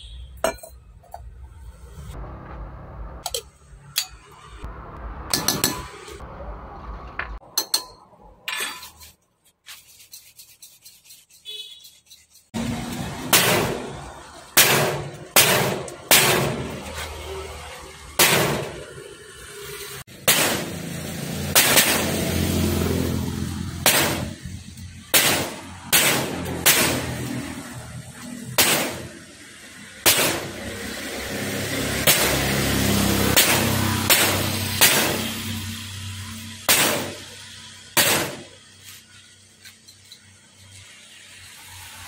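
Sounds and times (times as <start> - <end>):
loud sharp bangs: 13.2 - 16.8, 18.1 - 18.9, 20.1 - 22.4, 23.8 - 24.5, 25.1 - 27.4, 28.5 - 29.2, 30.0 - 30.7, 32.0 - 35.6, 36.6 - 38.6.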